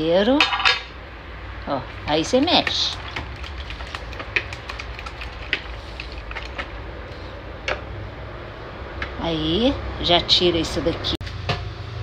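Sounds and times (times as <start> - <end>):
whisk stirring eggs in bowl: 2.2 - 7.3
whisk clicking against bowl: 2.3 - 6.7.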